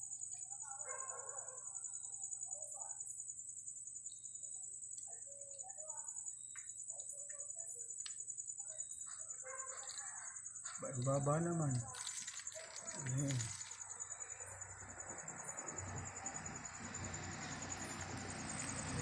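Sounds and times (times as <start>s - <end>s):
pulsing insect trill: 0.0s - 19.0s.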